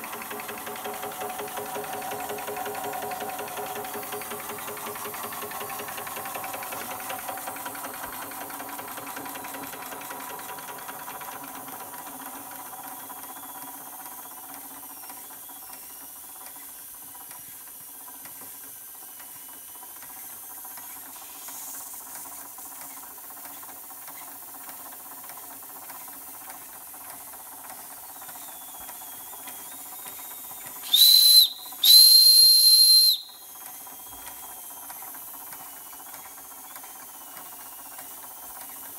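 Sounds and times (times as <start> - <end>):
toy steam engine running: 0.0 - 38.9
steam whistle blasts: 30.8 - 33.5.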